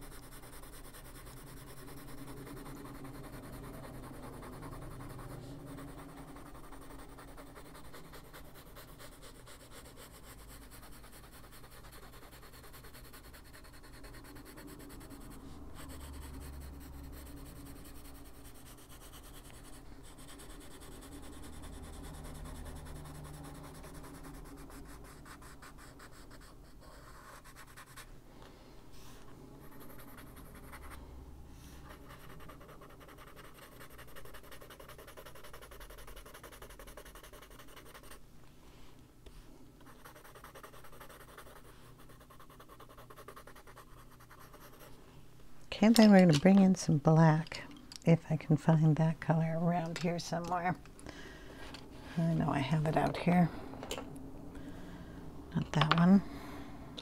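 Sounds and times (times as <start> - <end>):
pencil scratching on paper: 0.0 - 28.1, 29.6 - 31.0, 31.8 - 38.2, 39.8 - 45.0, 52.2 - 53.4.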